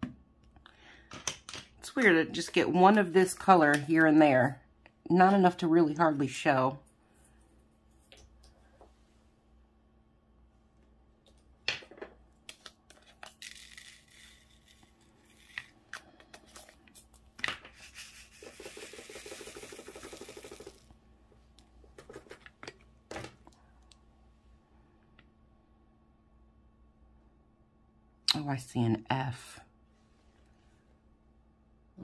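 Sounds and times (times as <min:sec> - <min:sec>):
plastic beads rattling in tray: 0:13.0 - 0:15.8, 0:17.7 - 0:20.9
beads sliding hiss: 0:13.3 - 0:15.8, 0:16.4 - 0:20.9.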